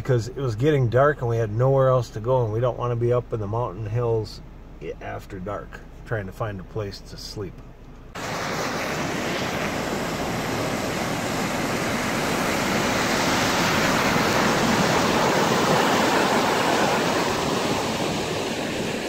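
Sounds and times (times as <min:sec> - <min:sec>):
river water rushing: 0:08.2 - 0:19.0.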